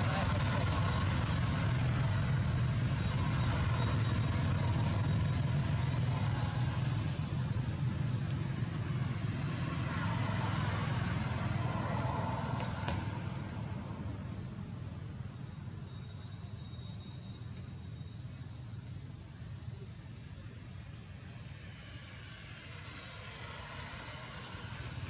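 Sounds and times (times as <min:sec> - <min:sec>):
vehicle engine running: 0:00.0 - 0:09.5.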